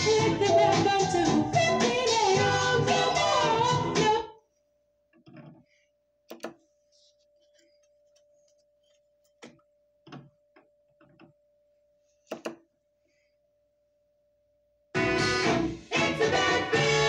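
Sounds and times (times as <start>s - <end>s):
soft knocks and clicks: 5.1s - 5.7s, 6.3s - 6.6s, 9.3s - 11.4s, 12.3s - 12.7s.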